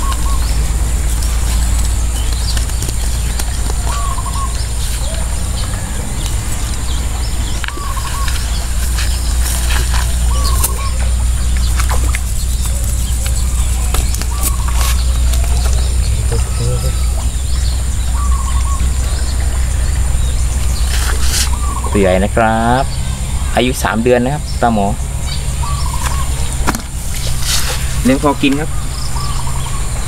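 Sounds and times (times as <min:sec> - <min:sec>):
bird wavering call: 0:00.0 - 0:23.6, 0:25.3 - 0:30.0
low rumble: 0:00.0 - 0:30.0
clicks and slaps on wet ground: 0:01.0 - 0:05.2, 0:07.6 - 0:15.9, 0:26.0 - 0:27.8.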